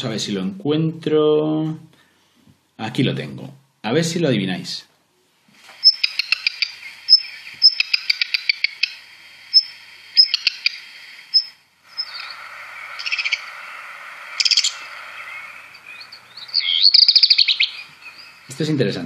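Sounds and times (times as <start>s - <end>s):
scratchy crackling bursts: 5.6s - 19.0s
bird whistles and trills: 5.8s - 13.6s, 14.3s - 18.5s.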